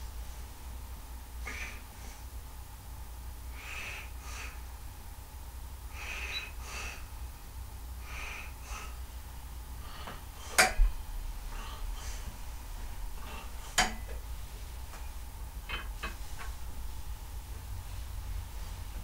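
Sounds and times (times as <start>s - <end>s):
person breathing: 1.4s - 2.3s, 3.5s - 4.7s, 5.9s - 7.2s, 8.0s - 9.1s, 9.7s - 12.5s.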